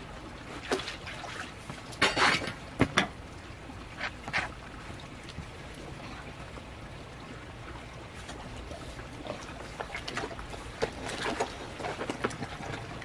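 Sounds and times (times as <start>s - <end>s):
hands sloshing in pond water: 0.0s - 2.7s, 7.9s - 13.0s.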